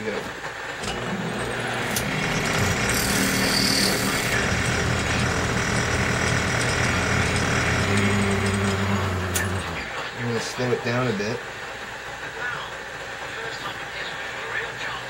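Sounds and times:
metal lathe running: 0.0s - 12.3s
high-pitched cutting sound: 1.5s - 9.9s.

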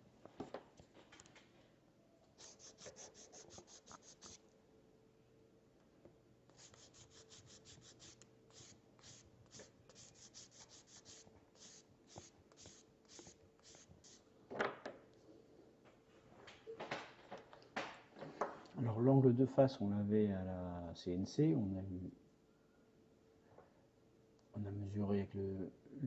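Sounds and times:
abrasive stick sanding plastic: 2.4s - 4.4s, 6.5s - 14.2s.

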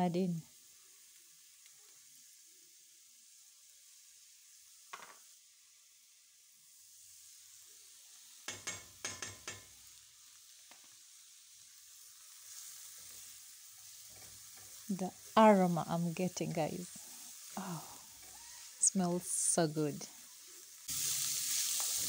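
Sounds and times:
mushrooms sizzling in a pan: 0.0s - 22.0s.

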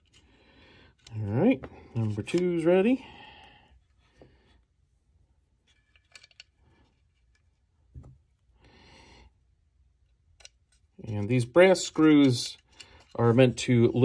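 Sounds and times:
small screws clicking and rubbing: 5.7s - 7.6s.

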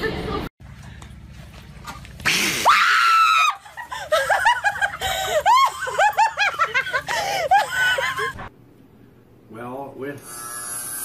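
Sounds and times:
woman laughing hard: 3.2s - 8.5s.

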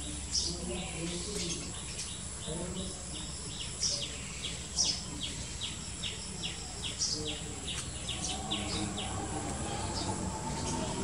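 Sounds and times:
small bird chirping: 0.0s - 11.0s
low background rumble: 6.9s - 11.0s.

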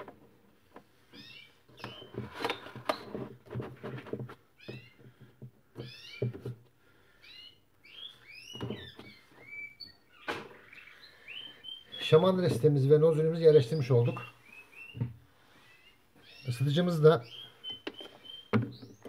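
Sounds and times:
short high chirping calls: 7.2s - 12.2s, 15.7s - 19.0s
light plastic knocks and clicks: 17.7s - 19.0s.

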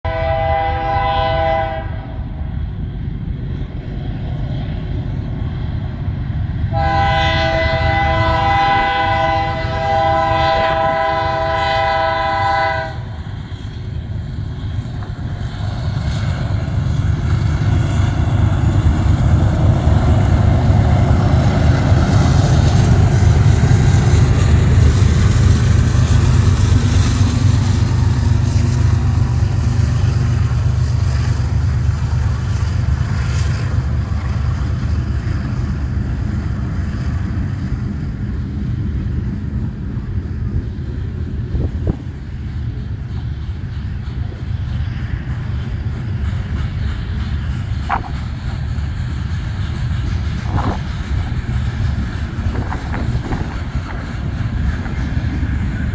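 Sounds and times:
wheels on rail roar: 0.0s - 55.9s
locomotive horn chord: 0.1s - 2.0s, 6.7s - 13.1s
locomotives rumbling past: 0.1s - 55.9s.

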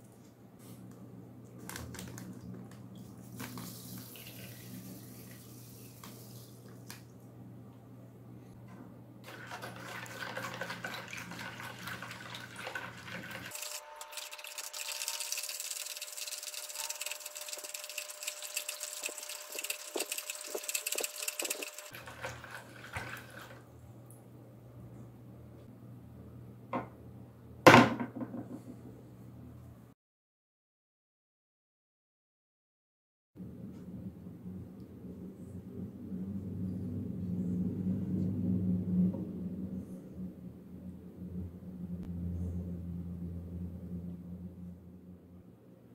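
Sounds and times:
water swishing in a plastic bowl: 9.3s - 13.6s, 14.8s - 23.7s.

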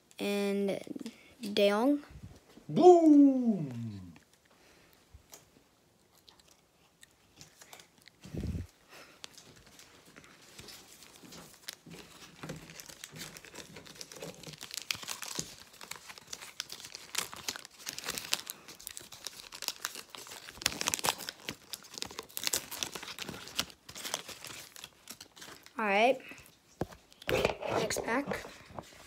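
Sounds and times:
foil wrapper crinkling and tearing: 9.0s - 28.4s.

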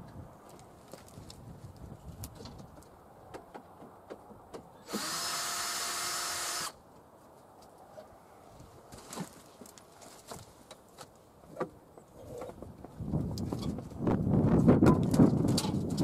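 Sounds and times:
power drill whine: 4.8s - 6.8s.

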